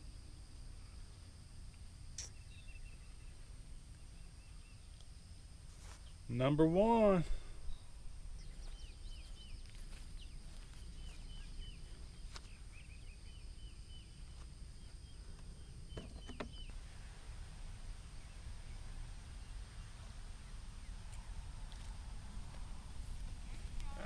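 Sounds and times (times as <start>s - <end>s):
low outdoor rumble: 0.0s - 24.0s
small bird singing: 2.2s - 5.0s, 7.3s - 16.8s.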